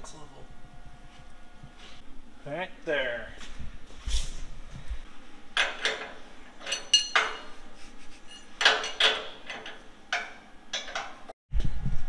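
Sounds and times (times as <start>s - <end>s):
wrench clinking against metal: 5.6s - 7.6s, 8.3s - 11.1s.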